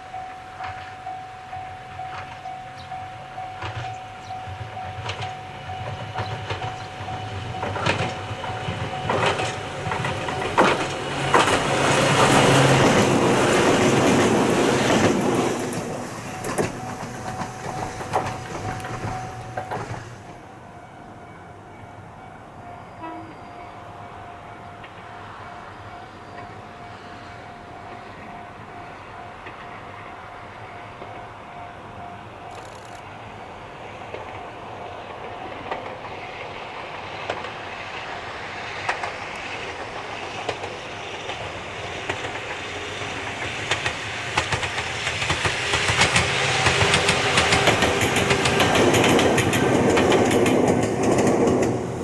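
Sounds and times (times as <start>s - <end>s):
electric train passing: 0.0s - 52.0s
wheels clacking over rail joints: 0.6s - 20.5s, 27.9s - 30.1s, 33.9s - 52.0s.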